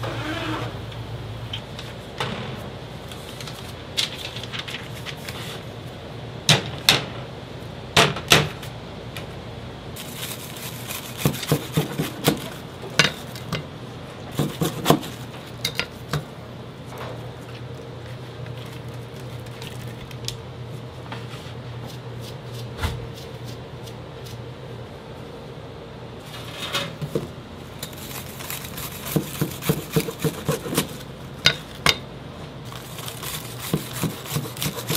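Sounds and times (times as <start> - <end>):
steady low hum: 0.0 - 34.9
dishes clattering on metal counter: 11.5 - 13.7.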